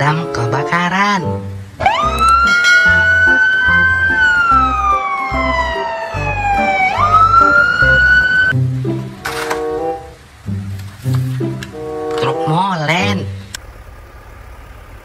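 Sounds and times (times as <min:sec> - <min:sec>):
background music with steady beat: 0:00.0 - 0:12.1
emergency vehicle siren wailing: 0:01.8 - 0:10.5.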